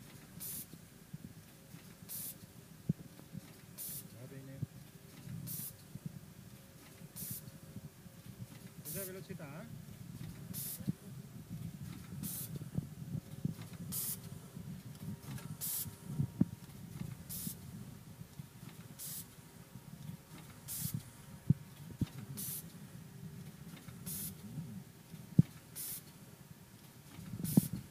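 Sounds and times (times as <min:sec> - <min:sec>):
compressed air hiss: 0:00.4 - 0:00.8, 0:02.1 - 0:02.5, 0:03.8 - 0:04.2, 0:05.4 - 0:05.8, 0:07.1 - 0:07.5, 0:08.8 - 0:09.3, 0:10.5 - 0:10.9, 0:12.2 - 0:12.6, 0:13.9 - 0:14.3, 0:15.6 - 0:16.0, 0:17.3 - 0:17.6, 0:19.0 - 0:19.4, 0:20.6 - 0:21.0, 0:22.4 - 0:22.8, 0:24.0 - 0:24.5, 0:25.7 - 0:26.1, 0:27.4 - 0:27.9
low machine hum: 0:09.4 - 0:27.9.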